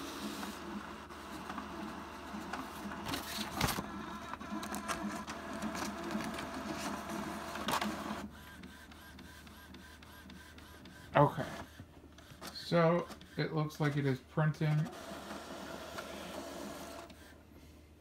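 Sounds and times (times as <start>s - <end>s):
inkjet printer whirring and clicking: 0.0s - 17.7s.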